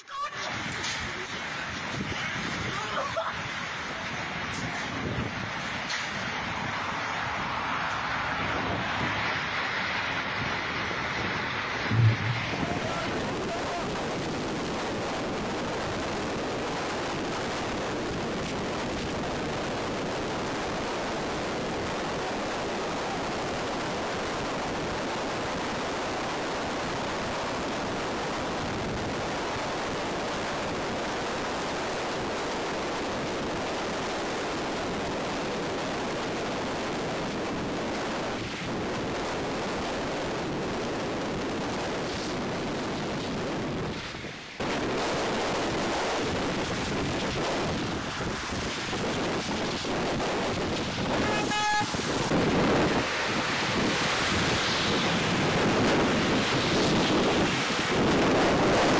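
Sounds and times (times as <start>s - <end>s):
heavy rain on a car: 0.0s - 11.8s, 12.6s - 58.9s
wind rushing: 6.3s - 26.4s, 32.3s - 58.9s.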